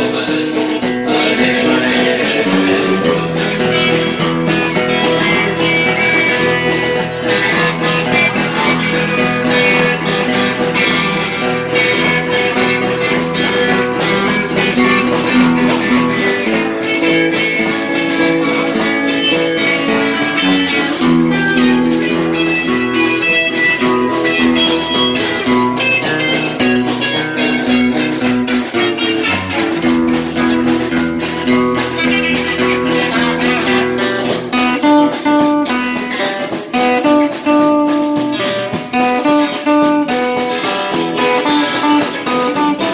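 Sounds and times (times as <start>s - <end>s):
electric guitar: 0.0s - 42.9s
strummed acoustic guitar: 0.0s - 42.9s.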